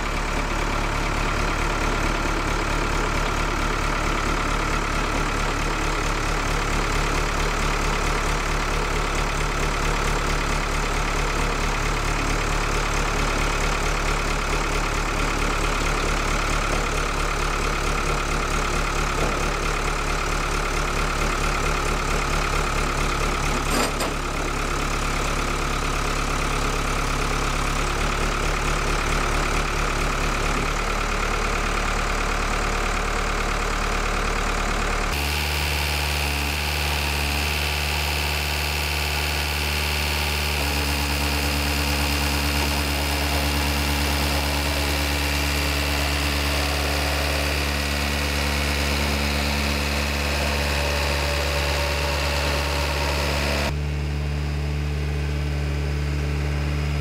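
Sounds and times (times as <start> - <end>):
diesel engine idling: 0.0 - 57.0
metal clank: 23.6 - 24.4.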